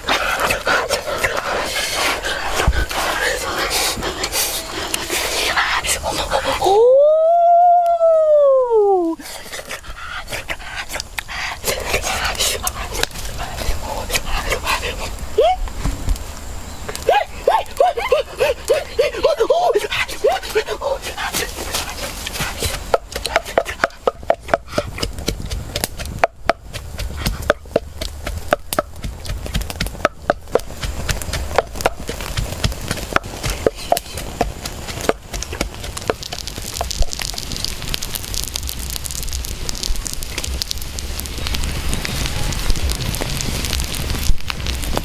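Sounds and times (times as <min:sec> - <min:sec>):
food grilling hiss: 0:00.0 - 0:45.0
wood fire crackling: 0:00.0 - 0:45.0
pestle pounding in wooden mortar: 0:22.4 - 0:37.4.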